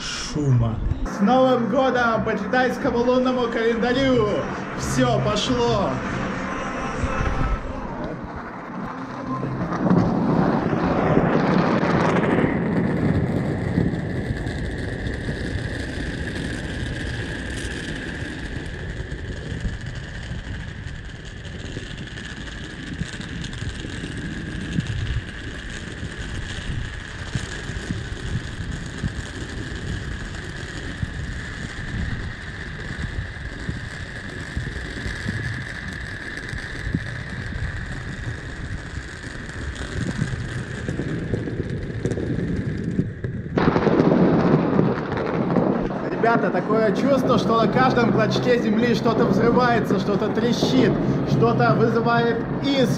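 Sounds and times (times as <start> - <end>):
steady high tone: 0.0 - 10.0
firecrackers crackling and popping: 0.0 - 52.9.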